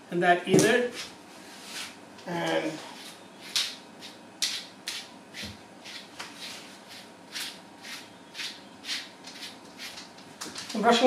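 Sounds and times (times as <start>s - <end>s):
brush swishing through fur: 5.4s - 8.0s.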